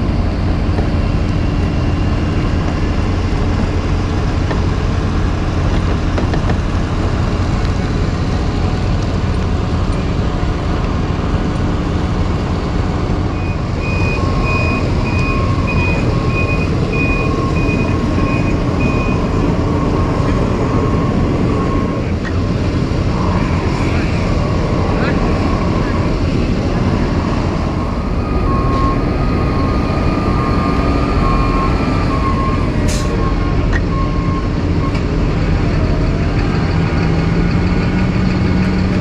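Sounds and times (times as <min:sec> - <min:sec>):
heavy diesel engine running: 0:00.0 - 0:39.0
reversing alarm beeping: 0:13.3 - 0:22.2, 0:23.2 - 0:35.1.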